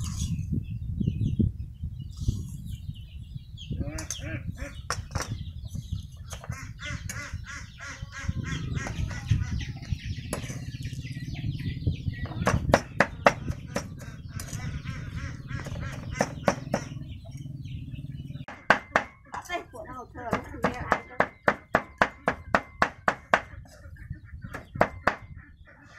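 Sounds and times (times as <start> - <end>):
chickens clucking: 3.6 - 25.9.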